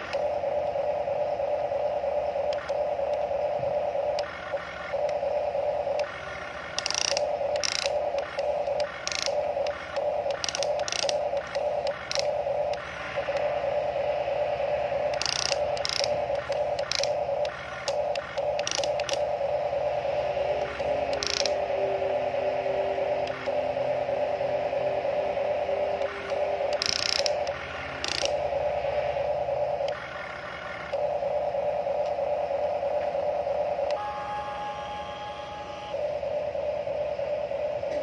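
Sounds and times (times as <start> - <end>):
toy excavator motor whir: 6.8 - 8.0, 9.0 - 9.4, 10.3 - 11.2, 12.0 - 12.3, 15.1 - 17.2, 18.6 - 19.2, 21.1 - 21.6, 26.8 - 27.4, 28.0 - 28.3
gear clicks: 6.8 - 12.8, 15.1 - 19.2, 21.1 - 21.6, 26.7 - 28.4.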